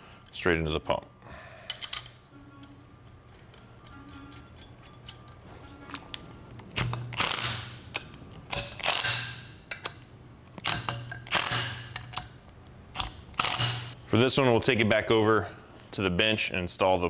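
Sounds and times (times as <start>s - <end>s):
power driver spinning bolts: 10.6s - 12.3s.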